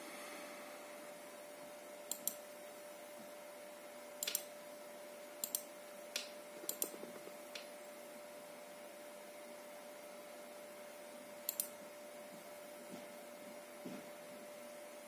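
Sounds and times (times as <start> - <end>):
faint electrical tone: 0.0 - 15.0
computer control clicks: 2.1 - 2.4, 4.2 - 4.5, 5.4 - 7.0, 11.5 - 11.7.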